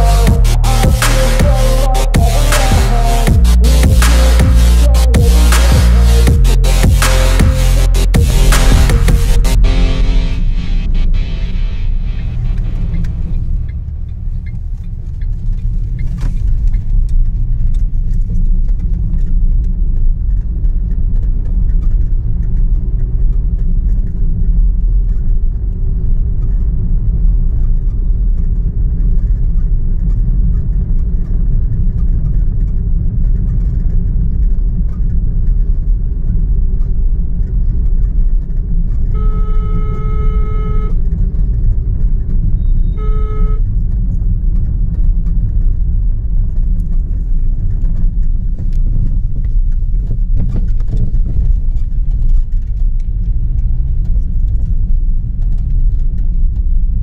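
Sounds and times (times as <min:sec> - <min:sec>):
vehicle horn: 0:00.0 - 0:13.4, 0:39.1 - 0:41.1, 0:42.6 - 0:43.8
vehicle driving rumble: 0:00.0 - 0:57.0.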